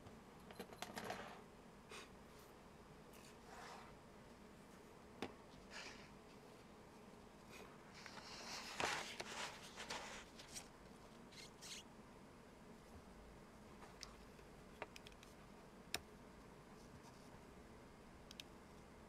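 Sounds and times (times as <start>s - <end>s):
paper rustling: 8.0s - 10.7s.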